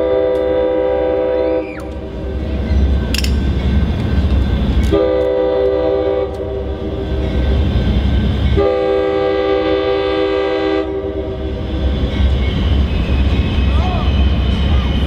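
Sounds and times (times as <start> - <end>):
train air horn: 0.0 - 2.1, 4.9 - 6.8, 8.5 - 11.6.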